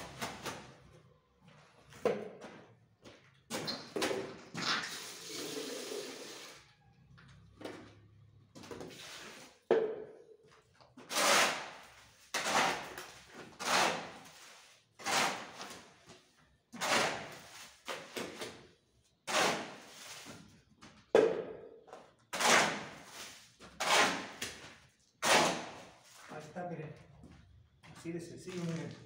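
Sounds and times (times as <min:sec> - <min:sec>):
shovel scraping concrete floor: 0:08.7 - 0:09.7, 0:11.0 - 0:18.6, 0:19.2 - 0:20.6, 0:22.3 - 0:26.4.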